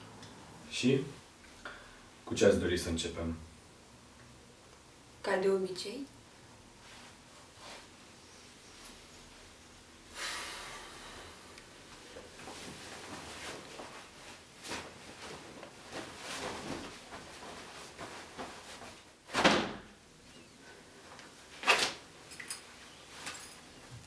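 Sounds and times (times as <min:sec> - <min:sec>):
clothing rustling: 0:11.8 - 0:19.4, 0:20.6 - 0:24.0
cloth swishes: 0:12.3 - 0:19.5.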